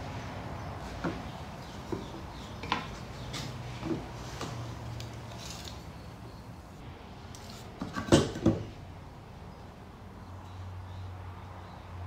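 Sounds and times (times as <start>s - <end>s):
wooden boards knocking on workbench: 7.8s - 8.7s.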